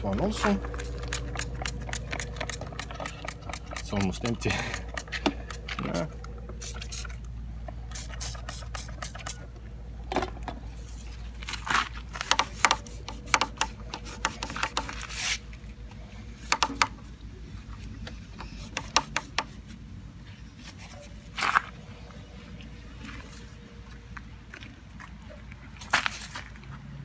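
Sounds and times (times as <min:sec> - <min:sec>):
cloth rubbing on metal: 0:12.5 - 0:15.5.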